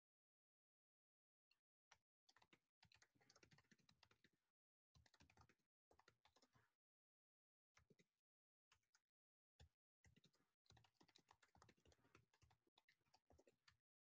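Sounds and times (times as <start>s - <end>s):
typing on computer keyboard: 2.3s - 4.3s, 5.0s - 6.6s, 10.1s - 13.8s.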